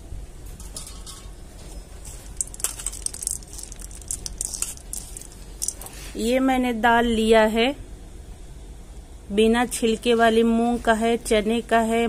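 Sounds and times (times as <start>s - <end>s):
faint crackling and rustling: 0.5s - 6.3s.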